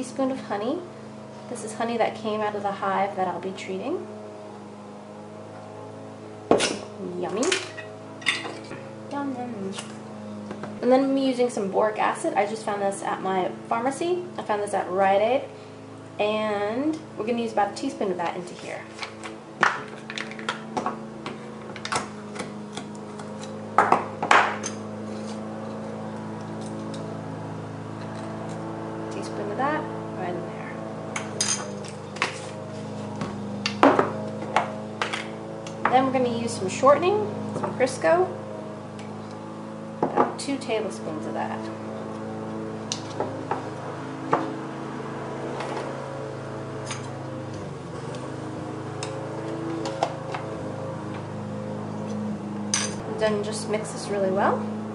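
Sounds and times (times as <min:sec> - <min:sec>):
low background hum: 0:00.0 - 0:54.9.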